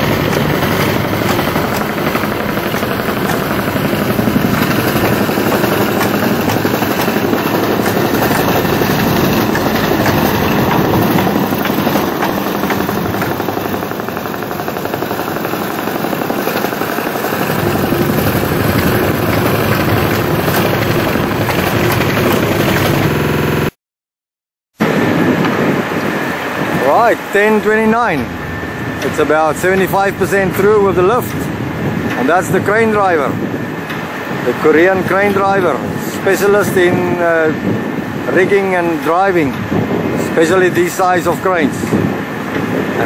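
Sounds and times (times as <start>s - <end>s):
crane diesel engine rumbling: 0.0s - 23.7s, 24.8s - 43.0s.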